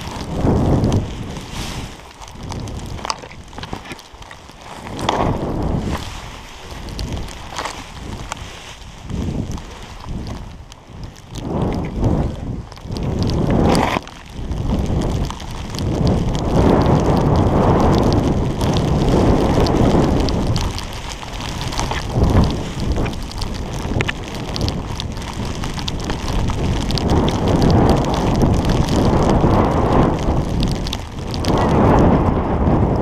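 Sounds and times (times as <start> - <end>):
skis hissing through snow: 0.0 - 2.7, 4.4 - 10.3
wind buffeting microphone: 0.0 - 33.0.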